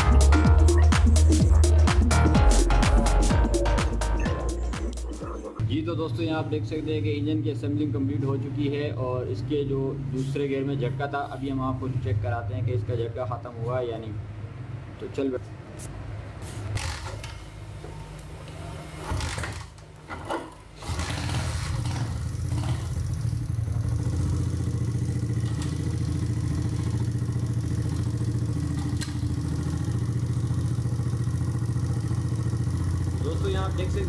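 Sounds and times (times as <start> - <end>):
motorcycle engine starting and running: 16.7 - 34.0.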